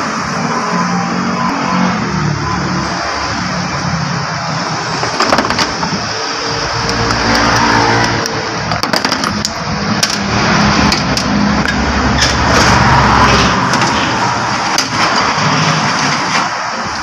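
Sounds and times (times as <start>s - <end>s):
engine humming: 0.0s - 17.0s
noisy din: 0.0s - 17.0s
metal parts clicking: 6.8s - 12.8s.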